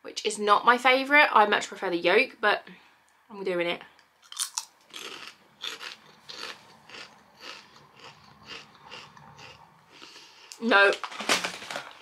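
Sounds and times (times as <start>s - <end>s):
person chewing crunchy crisps: 4.2s - 10.6s.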